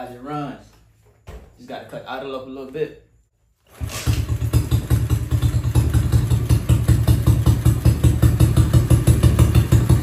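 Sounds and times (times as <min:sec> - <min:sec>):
motorcycle engine idling: 0:03.8 - 0:10.0.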